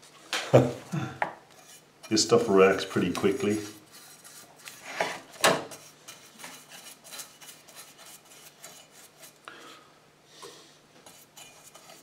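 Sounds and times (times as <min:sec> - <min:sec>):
brush scraping metal: 0:01.5 - 0:09.4, 0:11.0 - 0:12.0.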